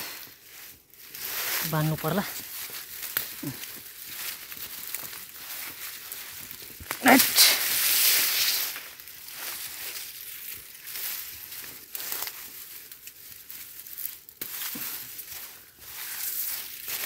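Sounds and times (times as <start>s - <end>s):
foliage rustling and crackling: 0.0s - 17.0s
stems snapping: 2.5s - 5.3s.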